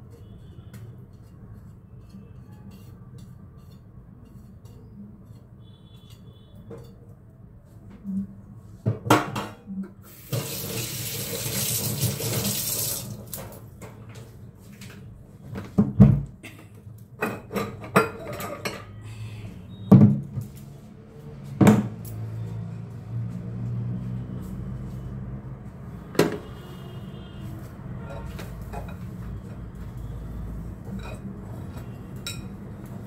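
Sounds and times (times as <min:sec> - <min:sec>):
kitchen tap running: 0:10.1 - 0:13.4
dishes clinking: 0:16.4 - 0:19.0, 0:30.9 - 0:32.6.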